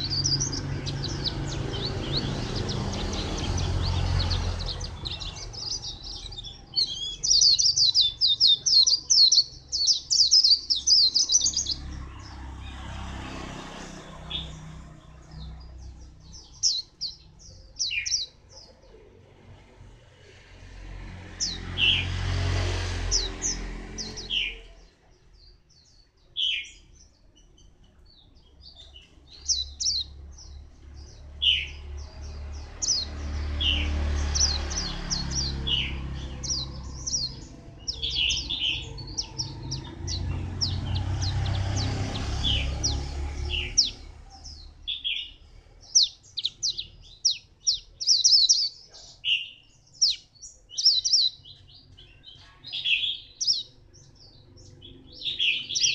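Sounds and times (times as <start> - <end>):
bird chirping and twittering: 0.0 - 55.9.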